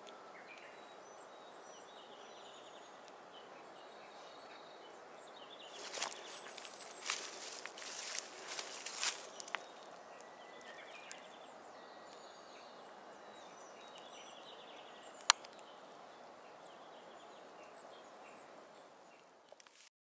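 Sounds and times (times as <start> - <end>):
outdoor background hiss: 0.0 - 19.9
high bird chirps: 5.7 - 11.4.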